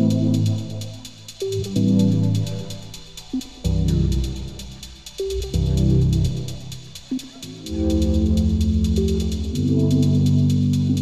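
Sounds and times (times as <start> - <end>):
fast ticking electronic beat: 0.0 - 11.0
low held bass notes: 3.7 - 6.8.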